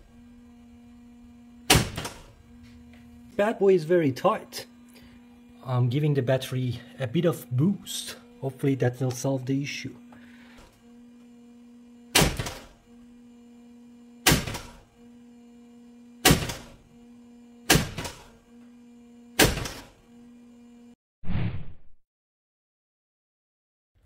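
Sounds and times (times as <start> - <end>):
steady hum: 0.0 - 21.0
starter motor clunks: 1.6 - 3.4, 12.1 - 12.9, 14.2 - 14.9, 16.2 - 16.9, 17.6 - 18.7, 19.3 - 20.0.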